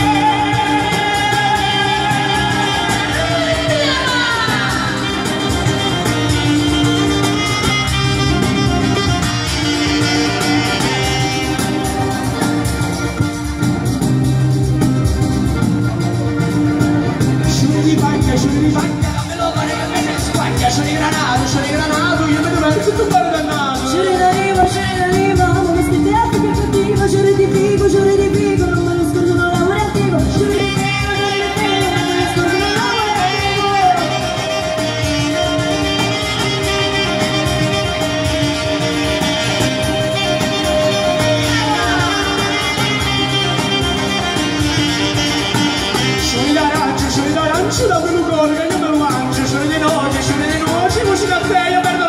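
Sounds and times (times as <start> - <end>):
accordion: 0.0 - 52.0
folk band playing: 0.0 - 52.0
guitar: 0.0 - 52.0
saxophone: 0.0 - 52.0
steady beat: 0.0 - 52.0.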